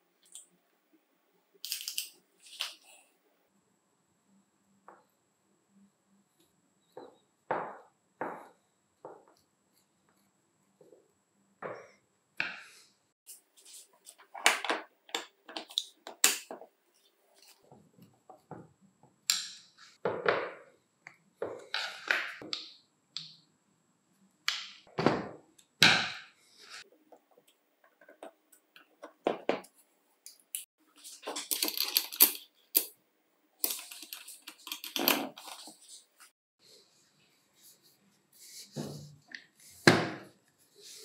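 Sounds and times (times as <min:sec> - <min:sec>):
metal parts scraping and rattling: 0:31.0 - 0:32.9.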